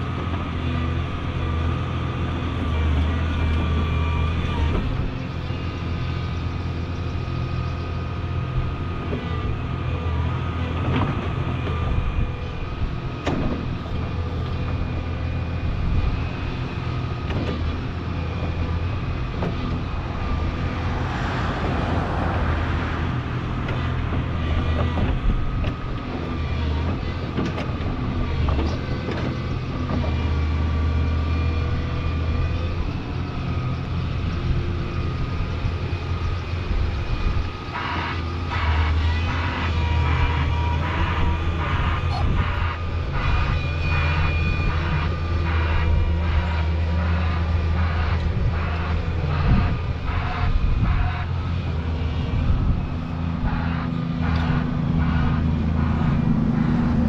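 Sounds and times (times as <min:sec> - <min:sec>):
excavator diesel engine running: 0:00.0 - 0:57.0
steady whine: 0:03.0 - 0:57.0
rushing noise: 0:19.8 - 0:24.7.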